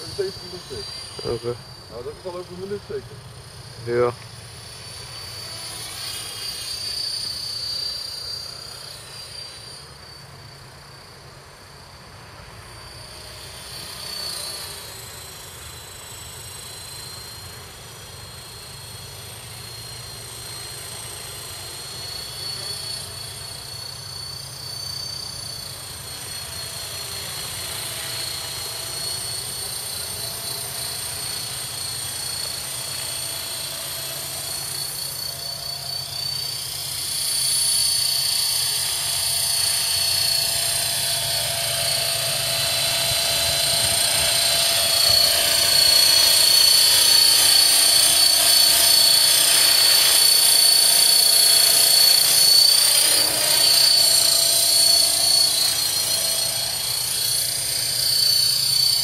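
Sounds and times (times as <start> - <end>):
model helicopter whine: 0.0 - 59.0.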